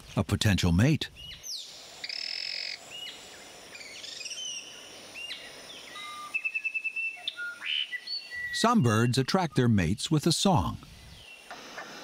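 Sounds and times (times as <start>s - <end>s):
birds calling: 0.0s - 12.0s
forest background noise: 0.0s - 12.0s
bird trill: 1.2s - 3.2s, 3.8s - 9.9s.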